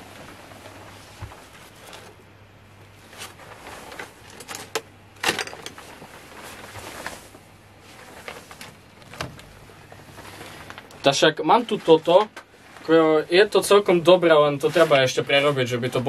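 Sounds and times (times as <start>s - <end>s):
objects being moved: 3.0s - 13.6s.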